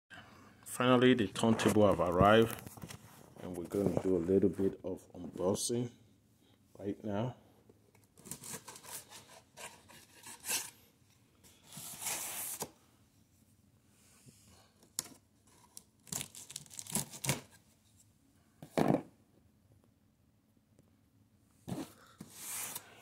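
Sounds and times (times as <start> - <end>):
packing tape tearing and scraping: 8.2 - 10.8, 15.5 - 17.6.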